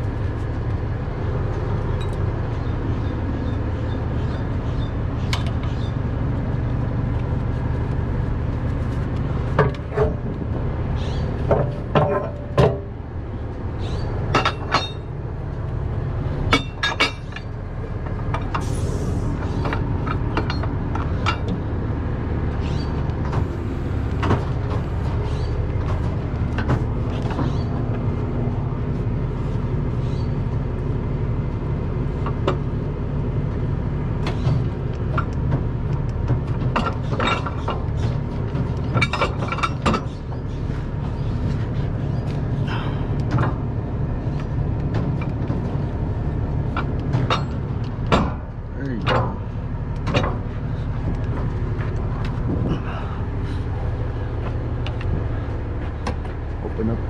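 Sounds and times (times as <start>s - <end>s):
truck engine idling: 0.0s - 57.0s.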